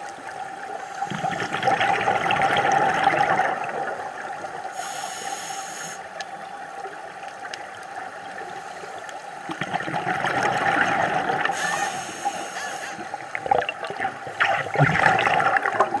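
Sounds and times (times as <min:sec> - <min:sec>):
exhale bubbles underwater: 0:00.6 - 0:05.3, 0:09.5 - 0:16.0
regulator hissing inhale: 0:00.7 - 0:01.4, 0:04.7 - 0:06.2, 0:08.4 - 0:09.2, 0:11.5 - 0:13.3.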